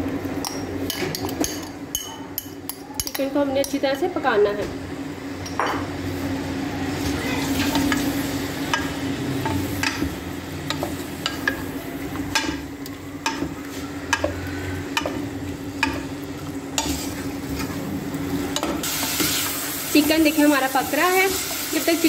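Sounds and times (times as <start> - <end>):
chicken sizzling in oil: 6.1 - 22.0.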